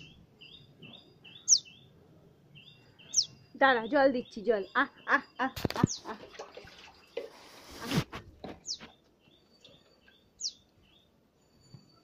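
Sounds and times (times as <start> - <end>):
sparrow chirping: 0.0 - 6.2, 8.5 - 11.6.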